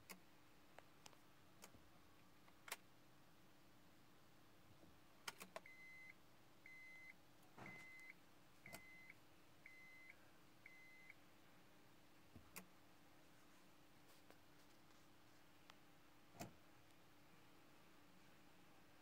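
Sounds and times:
car warning chime beeping: 5.7 - 6.1, 6.7 - 11.2.

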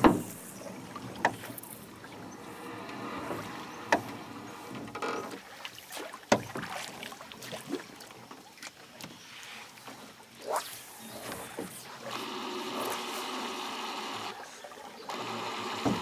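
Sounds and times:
sharp knocks: 0.0 - 0.4
water sloshing against boat hull: 0.0 - 16.0.

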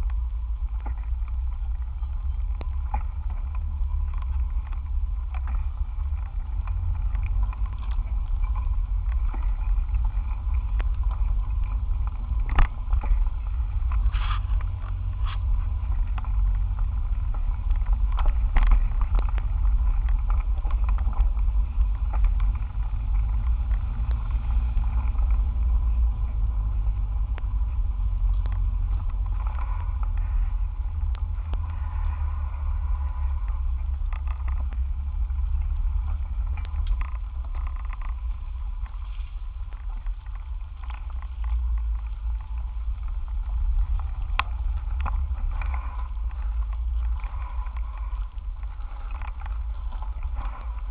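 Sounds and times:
bicycle road vibration: 0.0 - 50.9
wind on microphone: 0.0 - 50.9.

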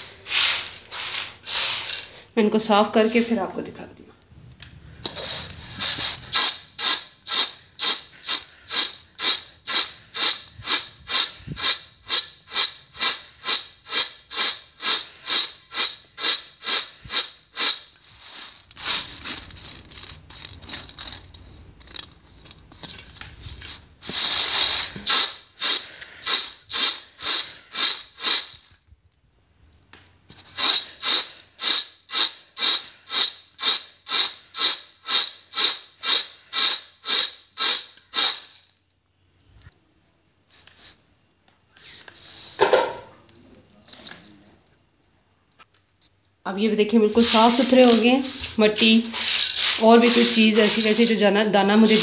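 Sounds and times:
chickpeas rattling in steel tray: 0.0 - 2.2, 5.0 - 28.8, 30.3 - 38.8, 47.0 - 52.0.

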